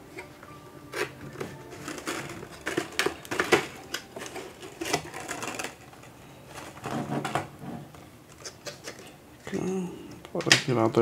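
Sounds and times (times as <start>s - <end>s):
packaging being handled: 0.9s - 7.4s.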